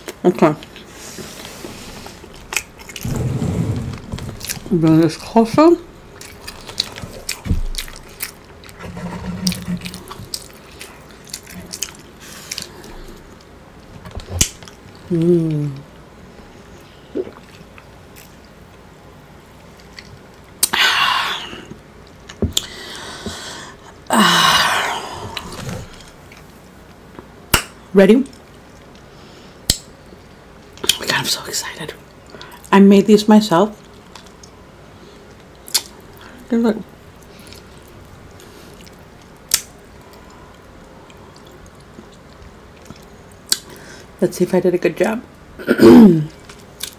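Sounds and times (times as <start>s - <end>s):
woman sighing: 22.7s - 25.6s.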